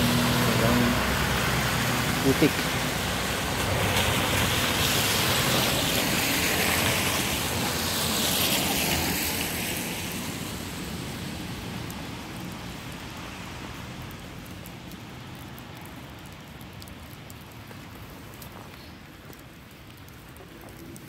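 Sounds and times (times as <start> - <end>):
tyres hissing through slush: 0.9 - 11.4.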